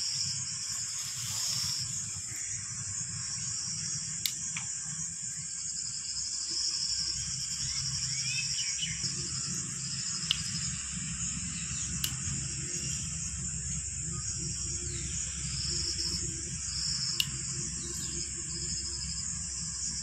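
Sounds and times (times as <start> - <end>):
insects chirring: 0.0 - 20.0
low rumble: 7.2 - 20.0
sharp clicks: 12.0 - 12.4, 17.0 - 18.2.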